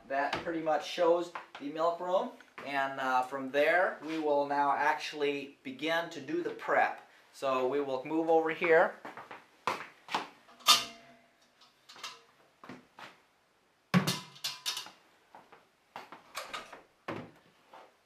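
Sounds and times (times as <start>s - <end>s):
metal bucket clanking: 10.5s - 11.3s.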